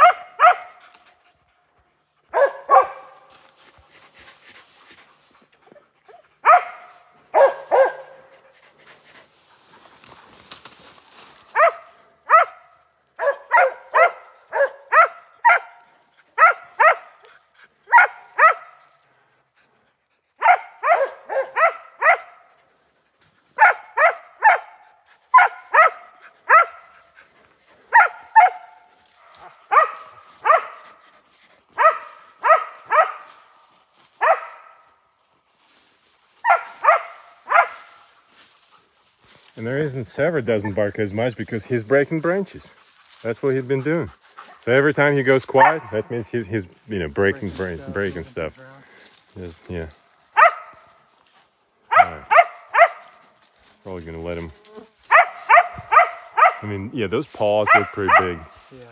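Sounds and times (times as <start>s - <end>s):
dog barking sharply: 0.0s - 0.9s, 2.3s - 3.3s, 6.4s - 8.3s, 11.5s - 15.8s, 16.4s - 17.2s, 17.9s - 18.8s, 20.4s - 22.5s, 23.6s - 26.9s, 27.9s - 28.8s, 29.4s - 30.9s, 31.8s - 33.3s, 34.2s - 34.8s, 36.4s - 38.0s, 45.6s - 46.0s, 50.4s - 50.8s, 51.9s - 53.0s, 55.1s - 56.6s.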